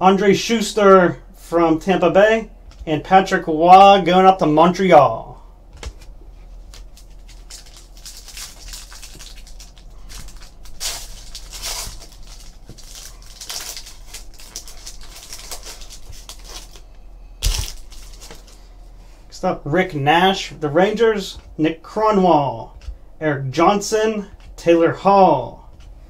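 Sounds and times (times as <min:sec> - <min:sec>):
foil wrappers crinkling and tearing: 0:06.5 - 0:18.7.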